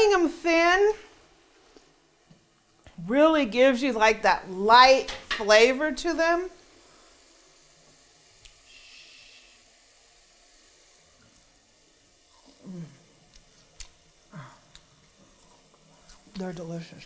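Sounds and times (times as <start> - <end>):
person humming mmm: 12.4 - 13.1, 14.3 - 14.8.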